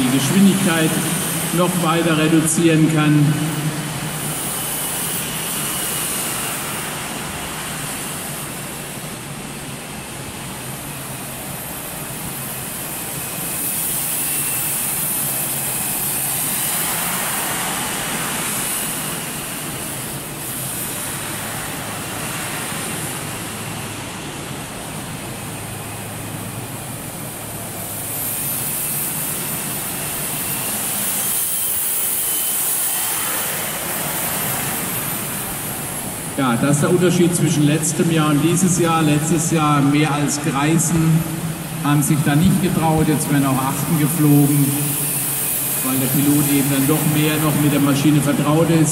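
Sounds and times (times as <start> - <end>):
model jet turbine whine: 0.0 - 48.9.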